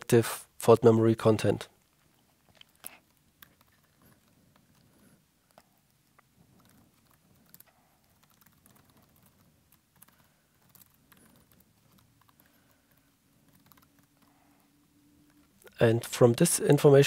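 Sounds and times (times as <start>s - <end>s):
low background hum: 0.0s - 17.0s
computer keyboard typing: 2.6s - 15.8s.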